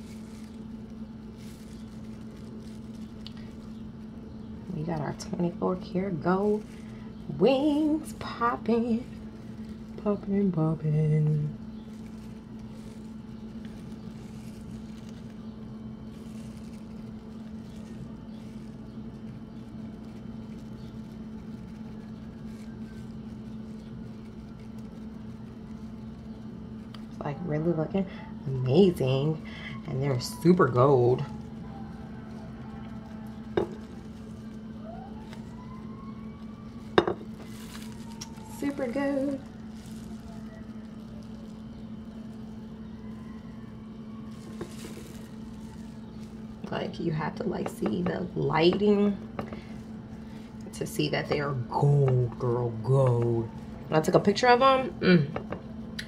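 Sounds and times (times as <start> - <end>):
faint distant siren: 0.0 - 55.9
machine hum: 0.0 - 56.0
brush tapping ceramic plate: 33.5 - 34.1.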